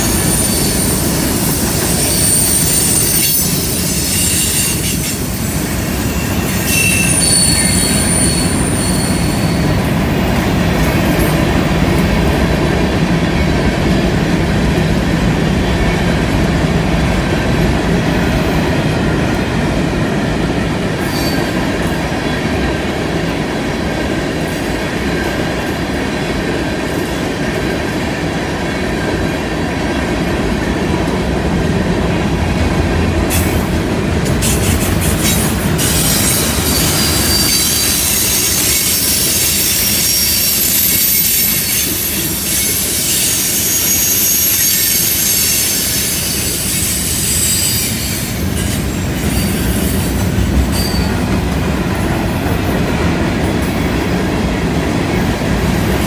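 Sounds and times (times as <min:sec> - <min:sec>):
freight train wheels rumbling on rails: 0:00.0 - 0:56.0
high-pitched wheel squeal: 0:00.2 - 0:09.7, 0:35.2 - 0:50.1, 0:50.7 - 0:51.2.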